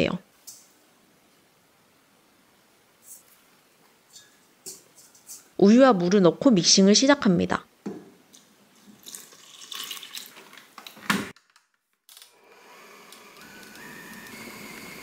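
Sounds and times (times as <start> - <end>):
liquid pouring into steel bowl: 8.9 - 10.4
stand mixer motor whining: 12.4 - 15.0.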